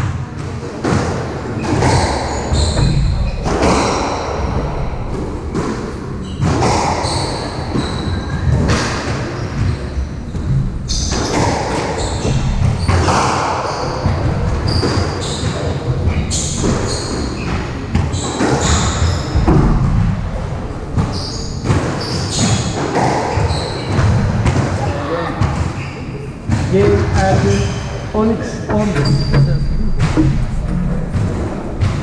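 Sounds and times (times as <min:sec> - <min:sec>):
shoes squeaking on wooden floor: 0:26.8 - 0:32.0.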